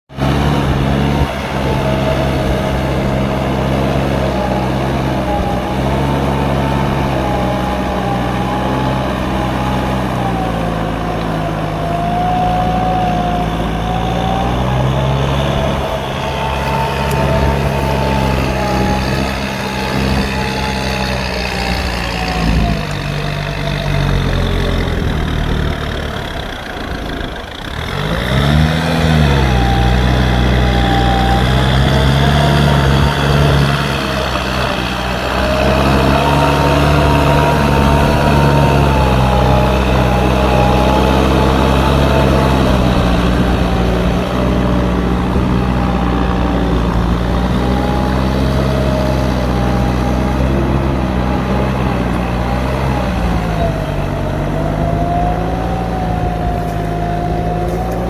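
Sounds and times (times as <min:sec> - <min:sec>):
tractor diesel engine under load: 0:00.0 - 0:58.0.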